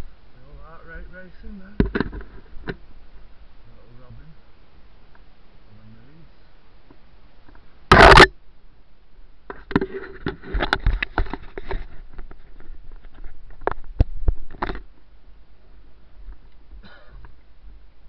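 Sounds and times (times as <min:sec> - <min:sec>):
short burst of noise: 0:07.9 - 0:08.4.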